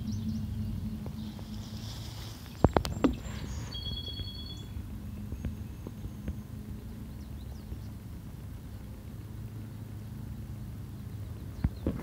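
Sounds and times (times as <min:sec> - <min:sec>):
low hum: 0:00.0 - 0:12.0
faint high chirps: 0:02.9 - 0:04.8.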